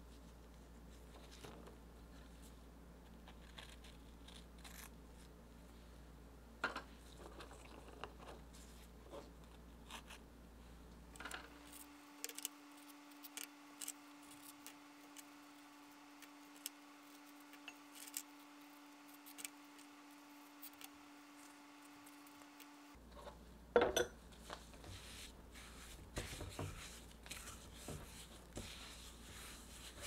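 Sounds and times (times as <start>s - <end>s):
cookies handled on a tray: 6.8s - 10.2s, 24.3s - 30.0s.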